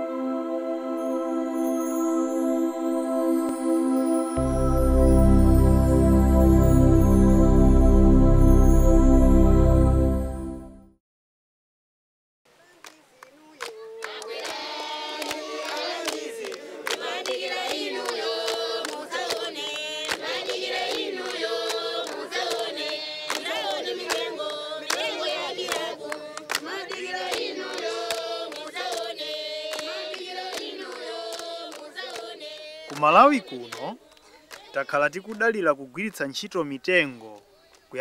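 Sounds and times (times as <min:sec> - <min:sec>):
choir singing in harmony: 0:00.0 - 0:10.8, 0:14.3 - 0:33.6.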